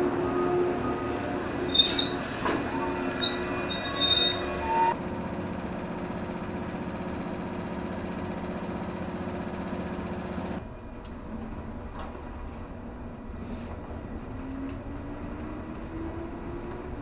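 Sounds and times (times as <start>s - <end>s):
electric train humming: 0.0s - 17.0s
train wheels squealing: 0.2s - 5.0s.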